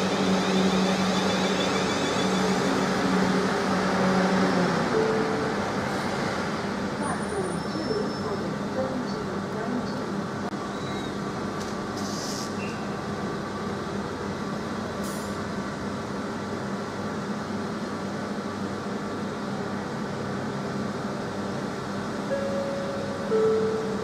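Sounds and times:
electric train equipment hum: 0.0 - 7.1, 12.9 - 24.0.

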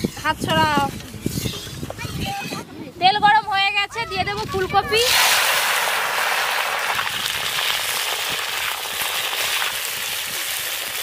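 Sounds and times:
vegetables sizzling in hot oil: 5.0 - 11.0.

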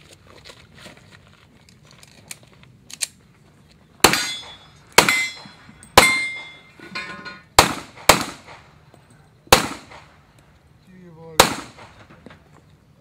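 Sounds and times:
pistol shots: 4.0 - 6.6, 7.6 - 8.7, 9.5 - 10.2, 11.4 - 12.2
metallic ringing: 4.1 - 7.5.

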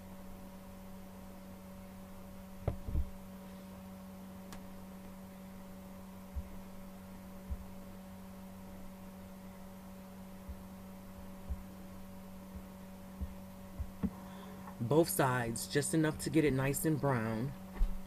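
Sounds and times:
electrical hum: 0.0 - 18.0
soft low thumps: 2.6 - 3.2, 6.2 - 7.9, 10.4 - 14.2.

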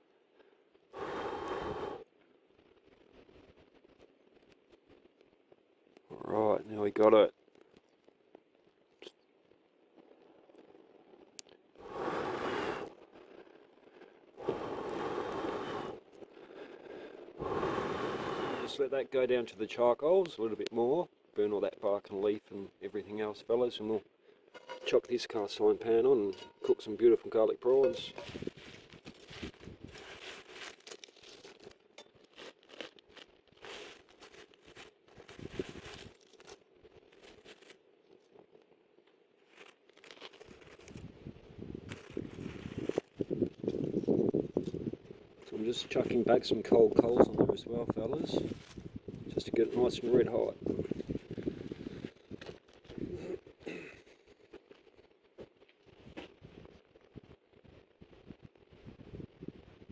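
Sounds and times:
campfire crackling: 0.0 - 59.9
person blowing into fire: 0.9 - 2.1, 11.7 - 18.8
hand raking through dry leaves: 27.9 - 36.6.

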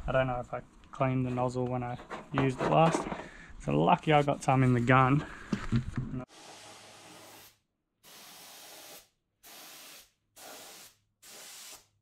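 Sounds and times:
spray gun hissing: 6.3 - 11.9.

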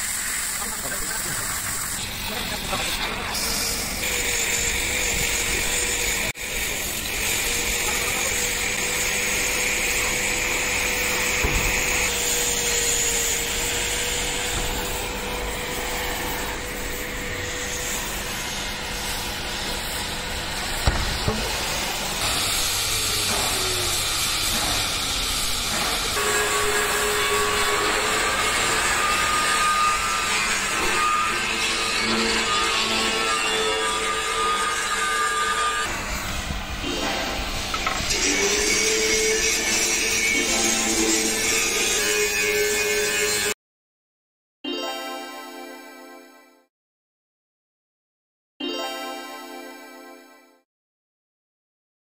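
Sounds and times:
cutting torch hissing: 0.0 - 31.5.

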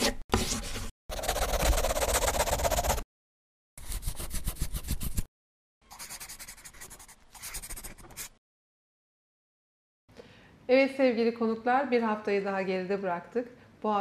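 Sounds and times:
pen scribbling on paper: 0.3 - 3.0, 3.8 - 5.3, 5.9 - 8.4.

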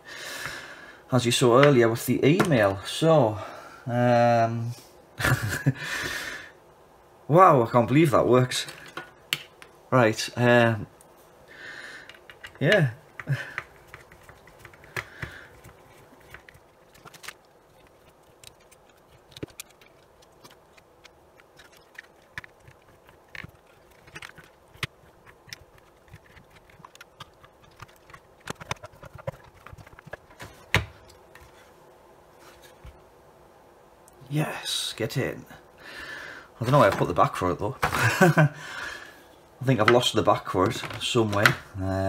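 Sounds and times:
plastic parts clicking and knocking: 12.0 - 31.0, 39.8 - 41.7.

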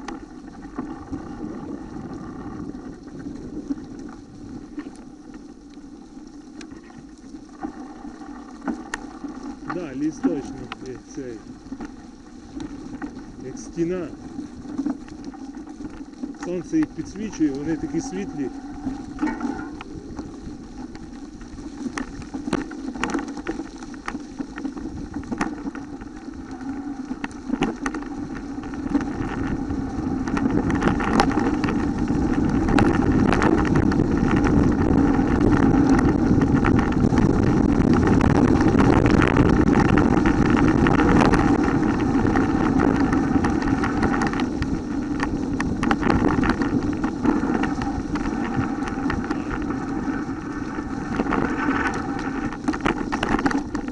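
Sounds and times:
tyres rolling over dry leaves: 0.0 - 53.9
wind on microphone: 0.0 - 53.9
bike clicks and rattles: 27.2 - 53.9.

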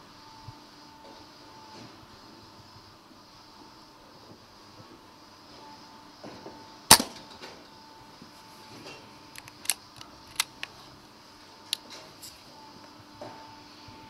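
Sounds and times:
air rifle shot crack: 6.9 - 7.2.

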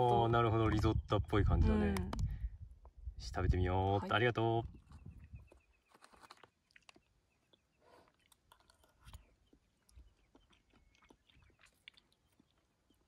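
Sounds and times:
faint chewing: 5.4 - 13.0.

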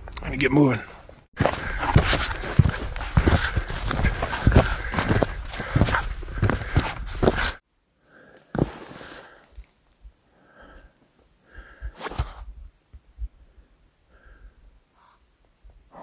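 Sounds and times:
breaths: 0.8 - 12.5, 13.2 - 15.3
handling rustles: 1.4 - 7.6.

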